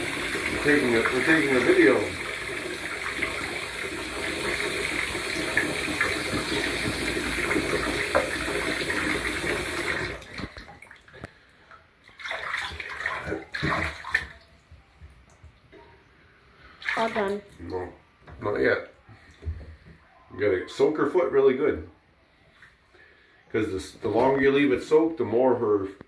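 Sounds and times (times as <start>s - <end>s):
tap running into tub: 0.0s - 11.4s, 12.0s - 15.7s
bathwater splashing: 0.0s - 15.4s, 16.7s - 17.8s.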